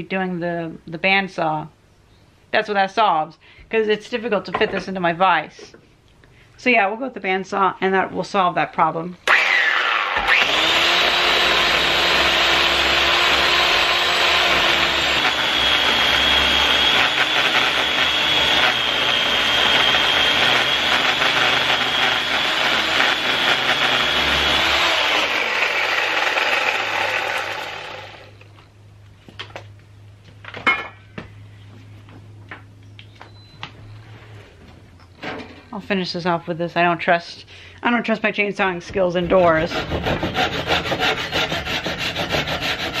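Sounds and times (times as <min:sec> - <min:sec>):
electric chainsaw cutting wood: 0:09.2 - 0:28.4, 0:39.7 - 0:43.0.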